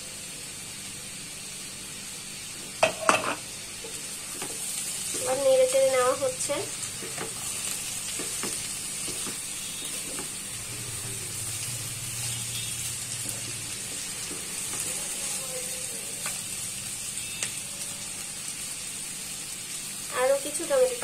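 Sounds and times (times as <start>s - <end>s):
vegetables sizzling in oil: 0.0s - 21.0s
spatula tapping pan: 8.1s - 10.4s.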